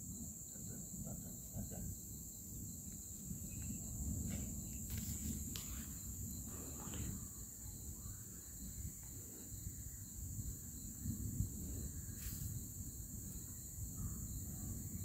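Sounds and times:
crickets trilling: 0.0s - 15.0s.

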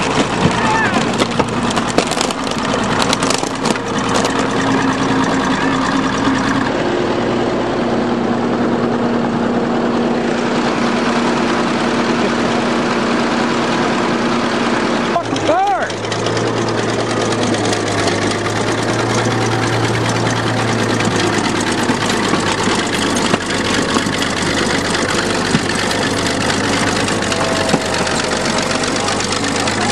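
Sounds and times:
car body crunching and cracking: 0.0s - 5.0s, 15.4s - 29.9s
bulldozer engine running: 0.0s - 29.9s.

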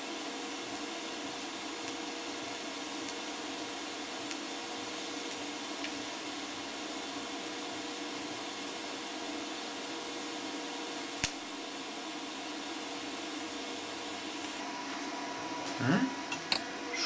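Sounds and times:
gas hissing: 0.0s - 14.6s
welding arc hissing: 0.0s - 14.6s.

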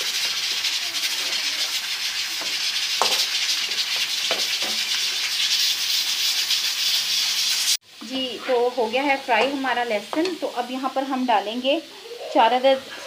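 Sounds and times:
paste sizzling in hot oil: 0.0s - 13.0s
spoon scraping pan: 1.6s - 7.7s.

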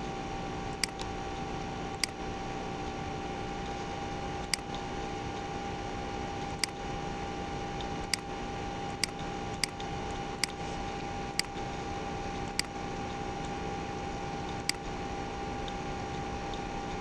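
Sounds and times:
background hum: 0.0s - 17.0s
thin constant tone: 0.0s - 17.0s
computer mouse clicking: 0.8s - 1.1s, 4.5s - 5.4s, 6.4s - 6.9s, 7.8s - 8.3s, 8.9s - 11.7s, 12.3s - 13.6s, 14.5s - 14.9s.

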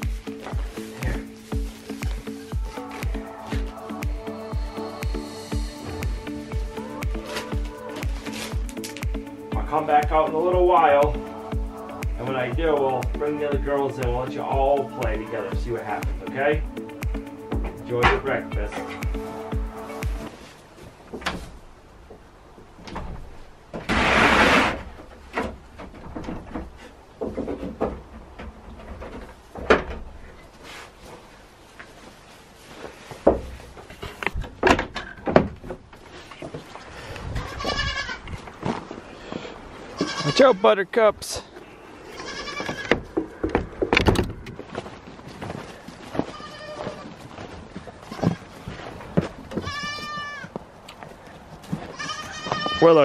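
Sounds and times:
goats bleating: 37.4s - 38.3s, 39.9s - 40.6s, 41.9s - 43.0s, 46.2s - 47.2s, 49.5s - 50.6s, 51.8s - 53.0s
knocks and thumps: 42.7s - 44.7s.

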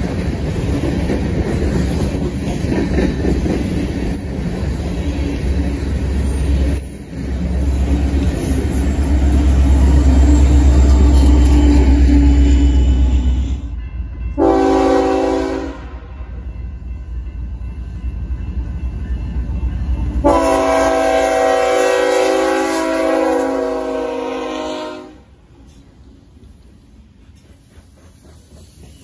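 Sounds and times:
train rumbling past: 0.0s - 29.0s
locomotive air horn blasts: 11.2s - 13.8s, 14.4s - 16.1s, 20.2s - 25.3s.

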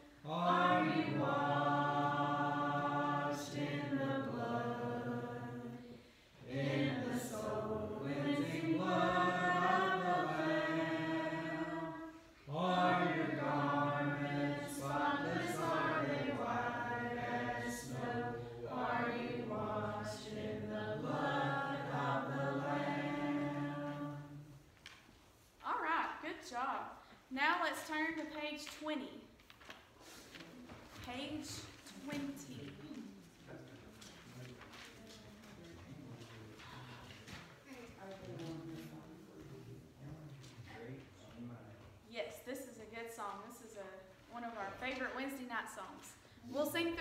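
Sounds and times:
congregation singing a hymn: 0.0s - 24.7s.

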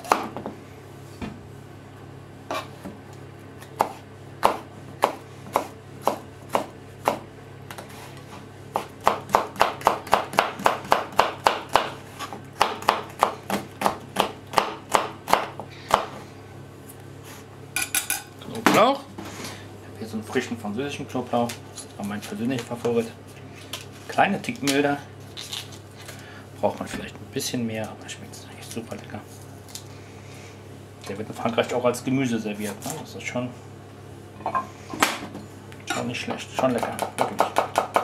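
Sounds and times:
knife chopping on plastic board: 3.7s - 7.8s, 8.7s - 12.0s, 12.6s - 16.2s, 36.6s - 38.0s.

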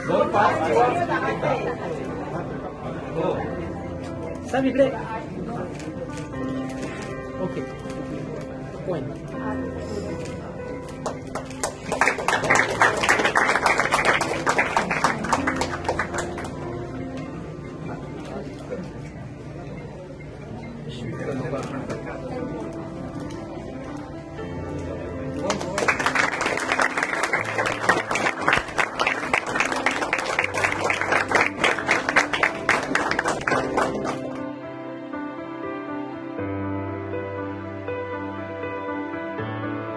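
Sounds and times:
people clapping: 10.9s - 16.8s, 25.4s - 34.4s
people applauding: 11.0s - 16.7s, 25.4s - 34.4s.

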